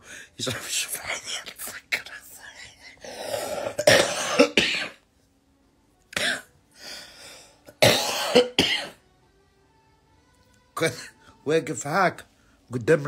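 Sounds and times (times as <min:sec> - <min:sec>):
woman coughing: 0:03.4 - 0:05.0, 0:06.2 - 0:06.5, 0:07.8 - 0:09.0.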